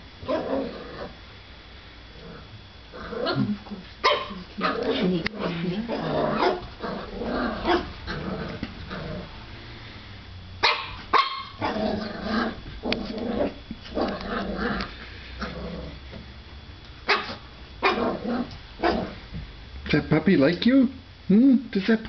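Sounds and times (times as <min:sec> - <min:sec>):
puppy growling: 0:00.2 - 0:01.2, 0:02.1 - 0:09.5, 0:11.5 - 0:16.2, 0:17.2 - 0:19.2
puppy barking: 0:03.3 - 0:05.1, 0:06.4 - 0:06.7, 0:07.6 - 0:08.0, 0:10.6 - 0:11.8, 0:17.1 - 0:18.2, 0:18.8 - 0:19.2.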